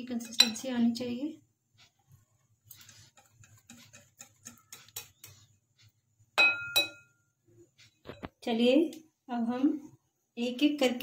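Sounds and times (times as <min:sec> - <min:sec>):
whisk ticking against bowl: 0:00.0 - 0:08.3
whisk clinking on glass: 0:00.1 - 0:00.7, 0:02.8 - 0:05.5, 0:06.4 - 0:07.2.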